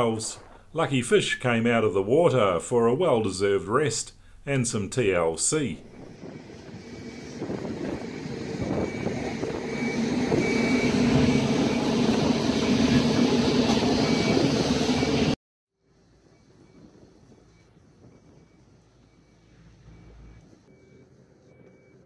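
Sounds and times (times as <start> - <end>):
travel lift engine running: 5.8 - 15.4.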